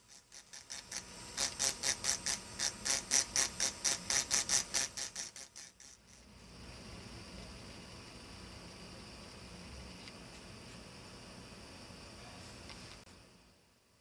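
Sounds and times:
engraving drill grinding glass: 0.0 - 6.3.

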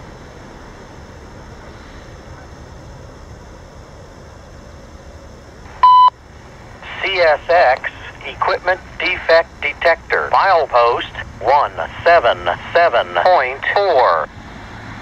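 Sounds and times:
distant freight train rumble: 0.0 - 15.0
scanner radio electronic beep: 5.7 - 6.2, 6.8 - 14.3.

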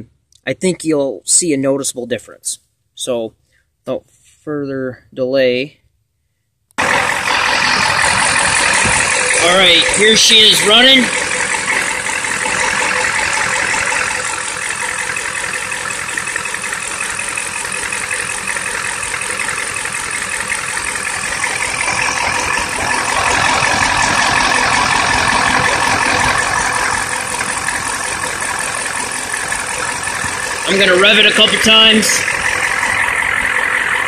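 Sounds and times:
diesel engine idling: 6.8 - 34.0.

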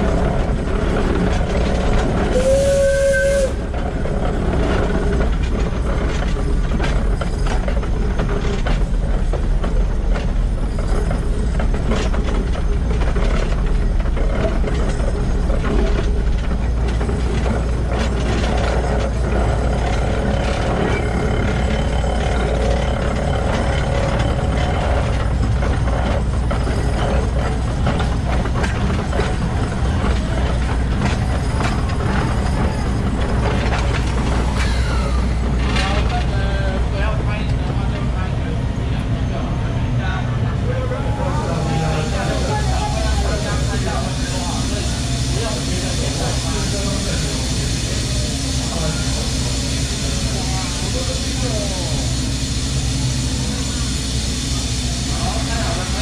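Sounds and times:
steam locomotive gears and wheels clattering: 0.0 - 56.0.

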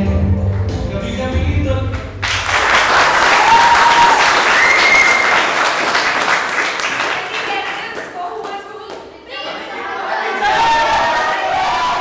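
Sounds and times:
audience clapping: 1.9 - 9.8.

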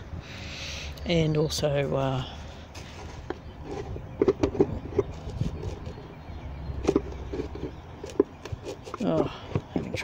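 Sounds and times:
knocks and clicks of handling: 3.2 - 6.0, 6.8 - 10.0.

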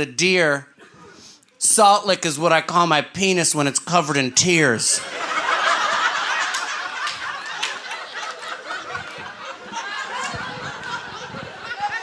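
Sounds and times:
audience laughing: 4.8 - 12.0.

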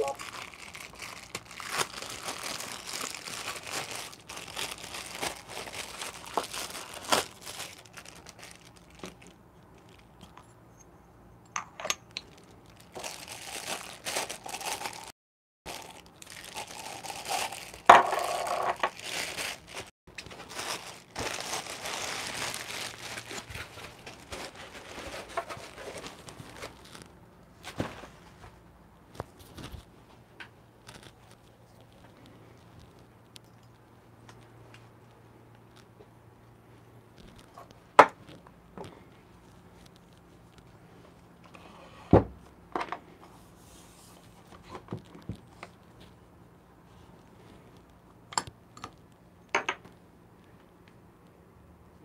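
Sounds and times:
plastic bags crinkling: 0.0 - 10.3, 12.1 - 28.2, 30.8 - 33.3.

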